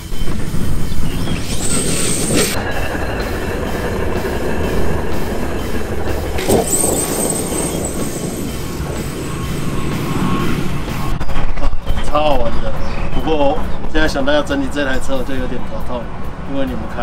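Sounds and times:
low rumble: 0.2s - 12.0s
rc car motor whine: 1.3s - 2.6s, 5.1s - 11.0s.

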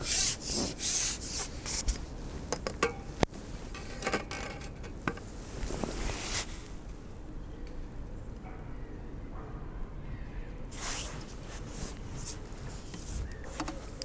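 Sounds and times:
fishing pole rasping against clothing: 0.0s - 2.0s.

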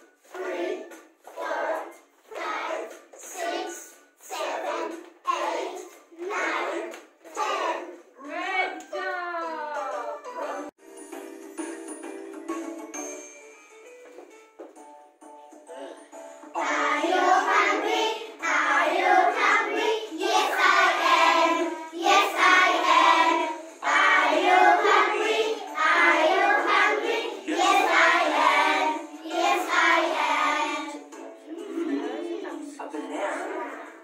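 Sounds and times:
children singing in unison: 0.3s - 8.0s, 16.6s - 31.0s.

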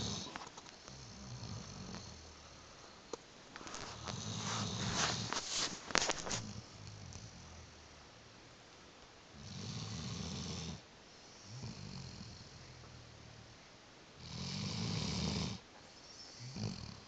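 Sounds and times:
dog snoring: 0.0s - 2.7s, 3.6s - 7.8s, 9.3s - 13.0s, 14.2s - 15.6s, 16.3s - 17.0s
dog breathing: 3.6s - 7.7s.

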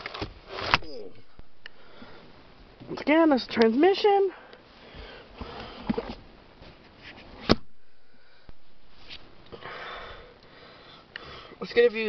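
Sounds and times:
rustling handling noise: 8.6s - 9.5s.

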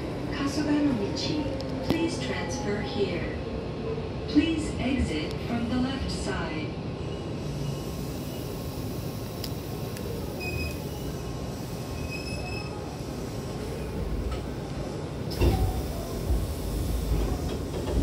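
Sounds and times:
train rumbling: 0.0s - 18.0s
sliding doors opening: 13.9s - 18.0s.

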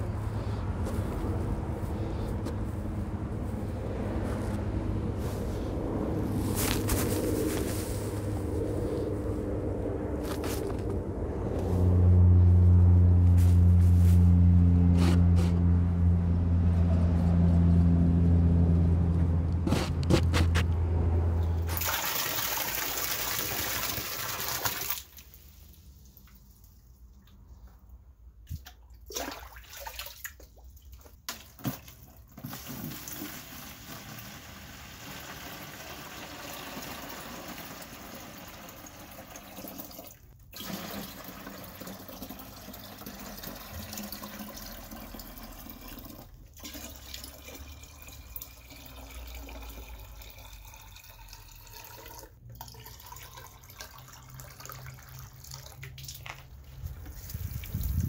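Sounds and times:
water pouring into watering can: 21.4s - 26.8s, 31.7s - 58.0s.

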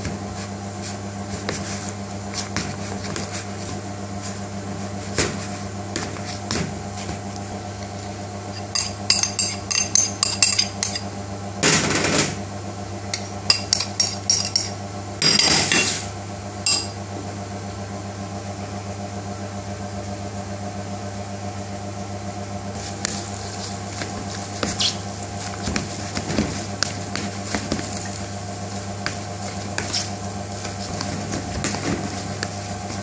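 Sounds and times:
steady low hum: 0.0s - 33.0s
metal spoon clinking in bowl: 16.7s - 16.9s.

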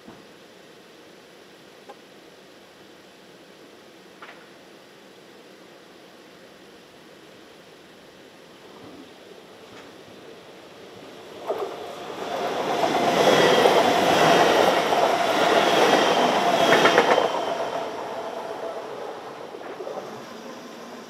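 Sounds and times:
train wheels rushing on rail: 8.6s - 21.0s.

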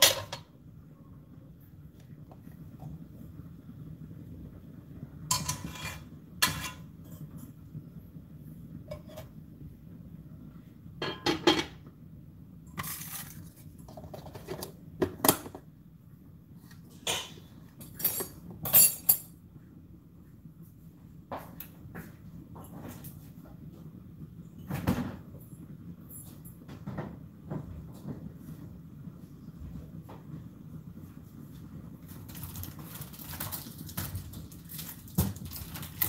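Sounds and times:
spoon clinking against pots: 5.3s - 6.9s.

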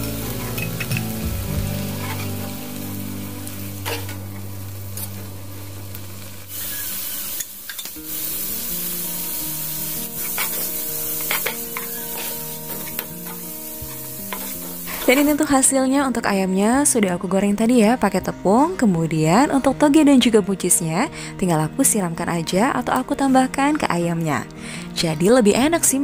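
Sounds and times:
vegetables sizzling in a frying pan: 0.0s - 15.8s
metal spatula scraping a pan: 2.0s - 2.4s, 10.2s - 15.3s.

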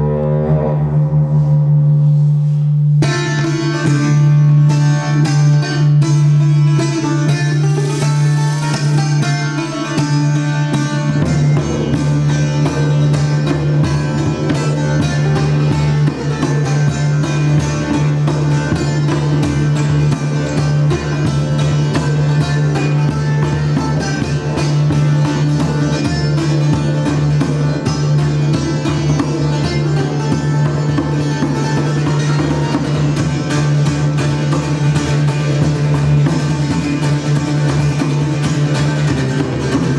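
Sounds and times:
didgeridoo drone: 0.0s - 3.6s
hand drum beats: 0.0s - 39.9s
plucked lute: 0.0s - 39.9s.

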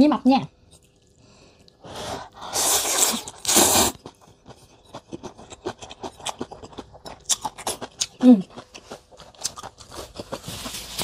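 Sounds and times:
person slurping noodles: 1.8s - 4.2s
wet chewing clicks: 3.0s - 10.4s.

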